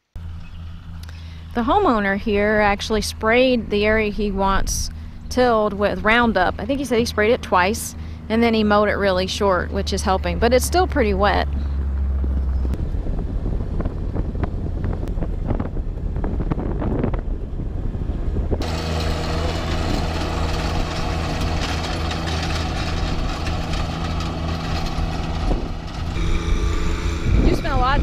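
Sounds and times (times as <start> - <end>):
low vehicle rumble: 0.0 - 28.0
tractor diesel engine under load: 0.1 - 28.0
rotary tiller churning sod: 18.6 - 28.0.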